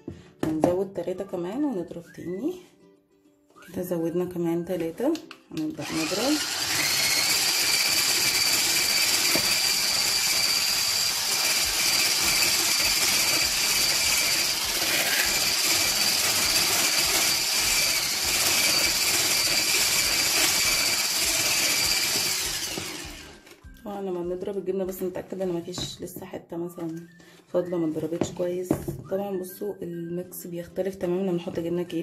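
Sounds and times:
hand blender motor whine: 5.8s - 23.6s.

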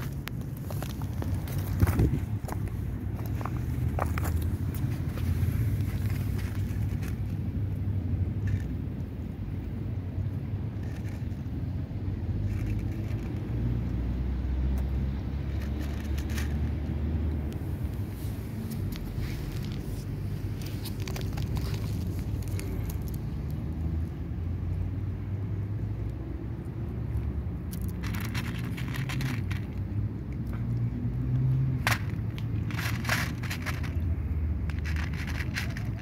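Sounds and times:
cat crunching dry kibble: 0.0s - 9.2s, 10.3s - 11.6s, 12.4s - 13.6s, 14.8s - 17.6s, 18.7s - 24.2s, 27.1s - 36.0s.

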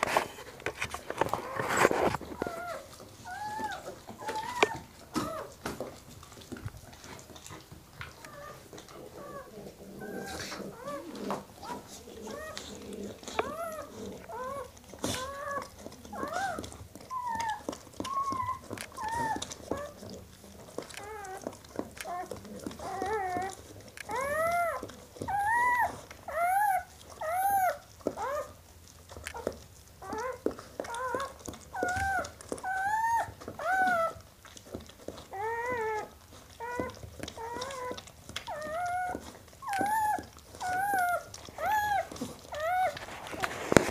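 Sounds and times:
puppy squeaky crying: 2.4s - 5.6s, 13.4s - 20.2s, 21.0s - 28.6s, 29.3s - 34.2s, 35.1s - 43.9s.

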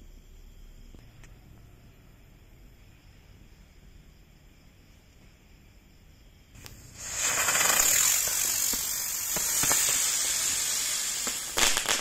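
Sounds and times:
firework crackles: 6.6s - 12.0s
firework hissing: 6.6s - 12.0s.

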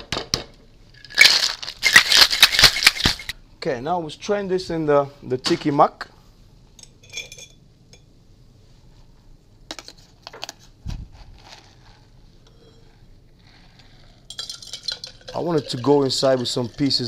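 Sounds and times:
metal cocktail shaker clinks: 1.0s - 3.3s, 14.2s - 17.0s.

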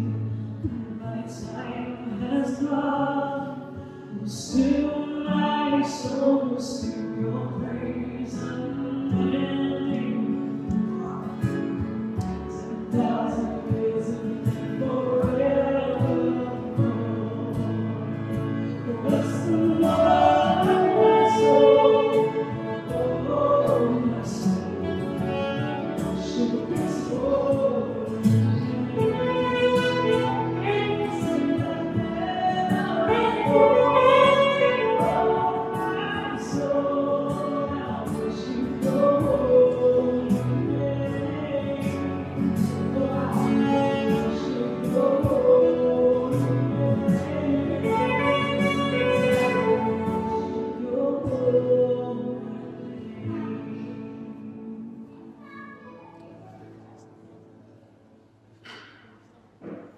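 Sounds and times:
voices singing slow chorus: 12.5s - 55.2s
saxophone: 15.4s - 38.4s, 41.9s - 51.9s.

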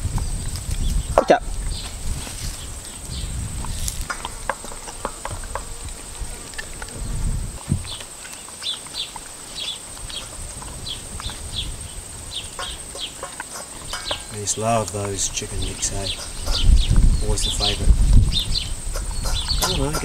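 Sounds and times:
dog chewing and crunching bone: 3.6s - 17.0s
clicks against metal bowl: 12.6s - 15.2s, 19.0s - 20.0s.

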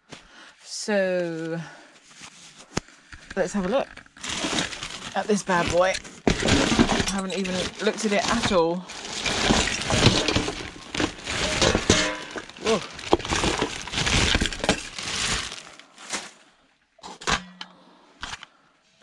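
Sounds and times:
plastic bags rustling: 3.4s - 16.6s.

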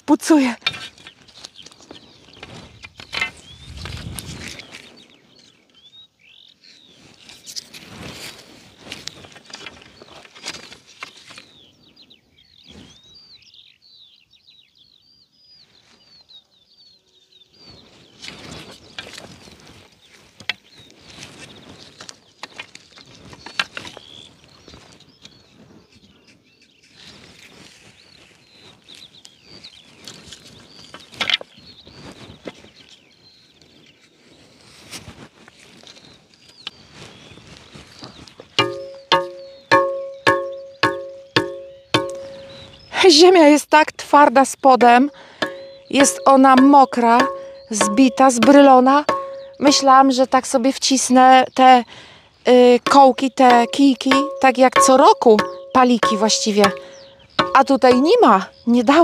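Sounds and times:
small birds chirping: 0.0s - 59.0s
garden stakes clicking together: 44.8s - 49.9s.

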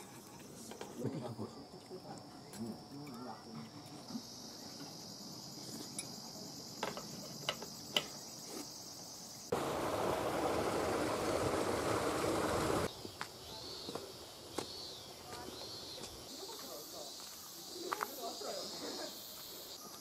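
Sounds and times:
high insect buzz: 4.1s - 20.0s.

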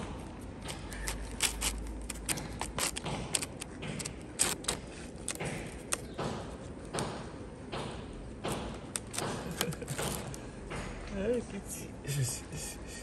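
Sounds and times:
cats chewing wet food: 0.0s - 6.0s.

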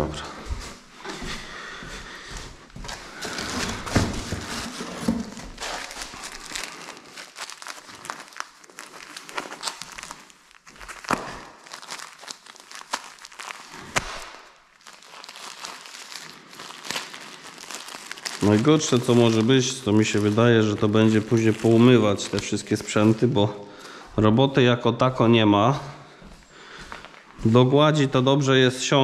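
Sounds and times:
plastic or paper crinkling: 1.2s - 24.2s.

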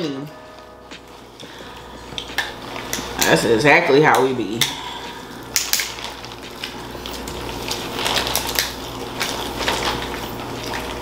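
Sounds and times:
plastic bags and gloves crinkling: 0.6s - 11.0s
crab legs crunching: 4.5s - 11.0s.

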